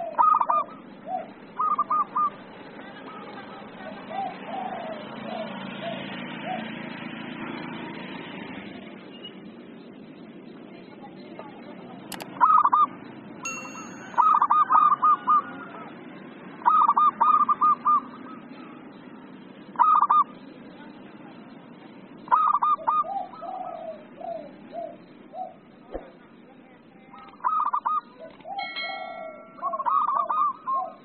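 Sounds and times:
dove cooing: 0.0s - 2.5s, 3.6s - 6.9s, 12.4s - 12.9s, 14.2s - 16.0s, 16.6s - 18.8s, 19.7s - 20.3s, 22.2s - 26.1s, 27.2s - 31.0s
sharp click: 12.1s - 12.3s
brief ringing tone: 13.5s - 14.6s.

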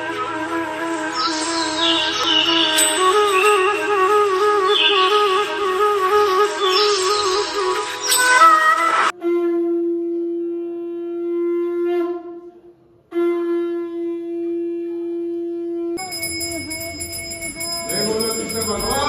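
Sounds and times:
bell ringing: 2.8s - 3.7s, 16.0s - 19.0s.

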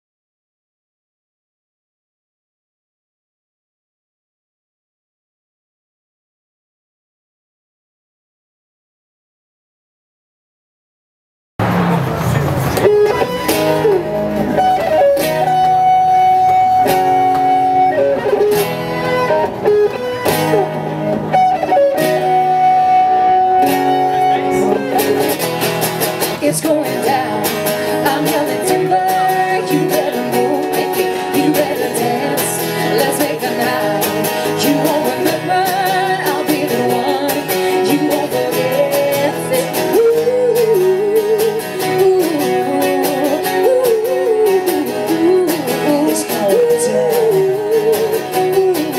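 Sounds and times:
acoustic guitars strumming: 11.6s - 48.9s
woman singing: 26.4s - 48.9s.

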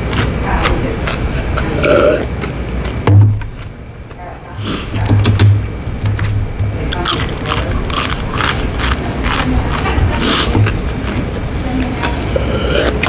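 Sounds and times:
crunchy food being chewed: 0.0s - 4.9s, 6.9s - 13.0s.

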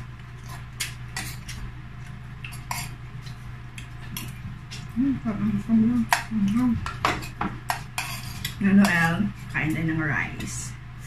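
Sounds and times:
person humming: 4.9s - 6.9s.

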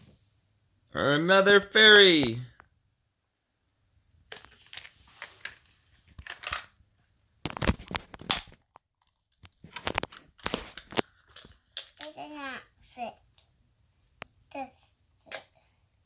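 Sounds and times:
plastic toys clicking and clattering: 4.3s - 6.8s, 7.5s - 12.4s.

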